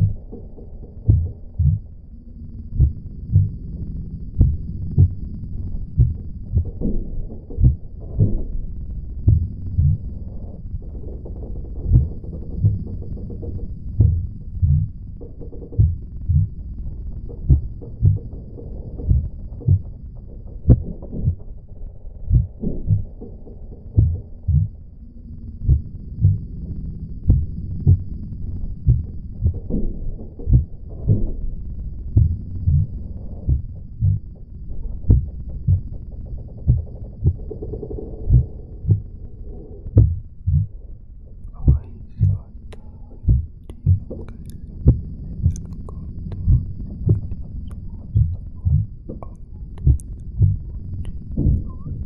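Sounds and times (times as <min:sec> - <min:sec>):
heartbeat thumps: 0:00.0 - 0:02.1, 0:02.7 - 0:24.9, 0:25.6 - 0:26.5, 0:27.1 - 0:39.3, 0:39.9 - 0:40.8, 0:41.4 - 0:52.0
low hum: 0:00.0 - 0:52.0
low steady rumble: 0:00.0 - 0:52.0
faint clicks: 0:41.4 - 0:52.0.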